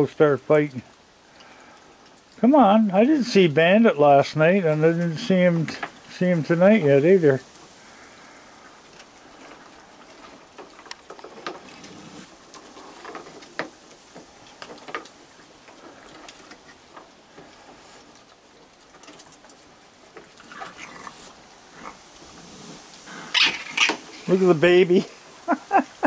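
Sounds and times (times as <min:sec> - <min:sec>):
animals crunching food: 0:00.0 - 0:25.5
claws on wooden boards: 0:07.5 - 0:24.4
raccoon vocal noises: 0:20.3 - 0:24.4.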